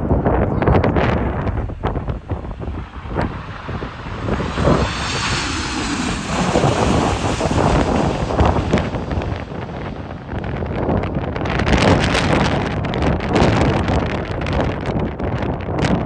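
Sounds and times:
jet engines passing overhead: 0.0 - 16.0
wind buffeting microphone: 0.0 - 16.0
faint high engine whine: 1.7 - 11.2.

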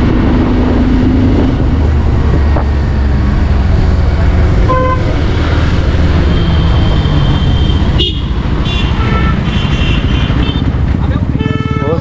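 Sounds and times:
motorcycle engine running: 0.0 - 12.0
vehicle horns: 4.6 - 5.2, 6.3 - 12.0.

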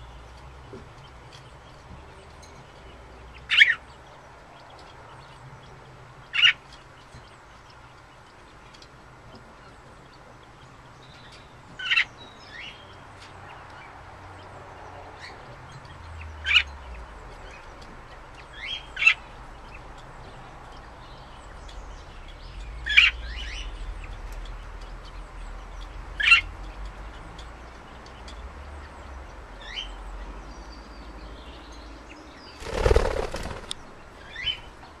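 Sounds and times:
budgerigars chirping: 2.8 - 8.7, 9.5 - 31.1, 32.1 - 34.8
bird wingbeats: 32.6 - 34.0.

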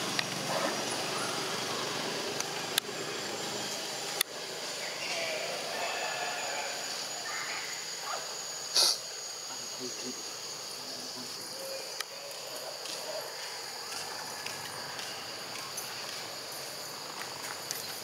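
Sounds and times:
insects buzzing: 0.0 - 18.0
loud sharp noise: 8.6 - 9.5.

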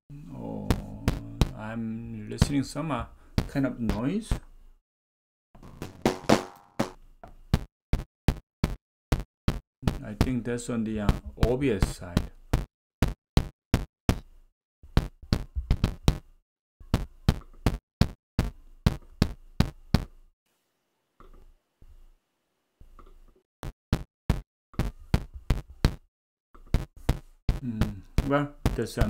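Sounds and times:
digital audio clicks and pops: 16.9 - 20.1.

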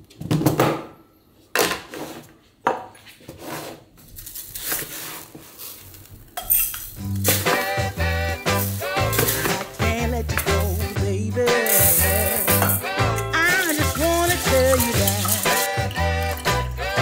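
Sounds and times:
music: 7.0 - 17.0
plastic scoop knocking: 9.0 - 10.8, 13.4 - 16.8
rice grains pouring into glass: 11.6 - 17.0.

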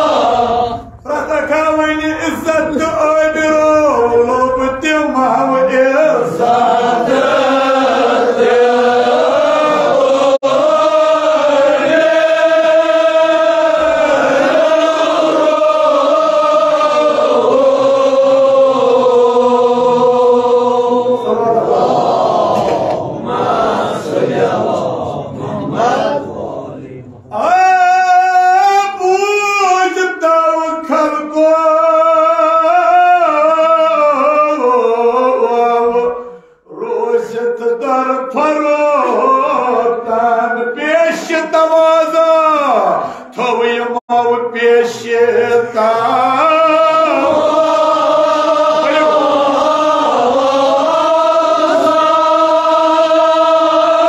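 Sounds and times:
man chanting over a microphone: 0.0 - 11.4, 12.1 - 51.0
many voices overlapping: 0.0 - 27.9.

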